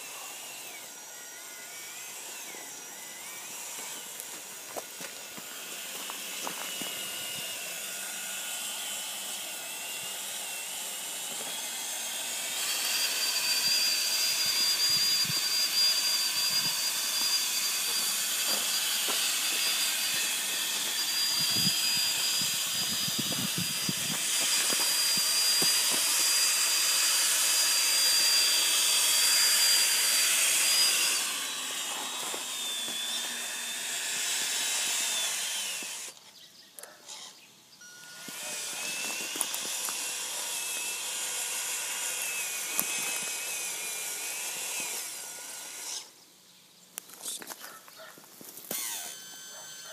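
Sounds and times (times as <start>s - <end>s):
toy truck gear whine: 0.0s - 46.2s, 48.5s - 49.9s.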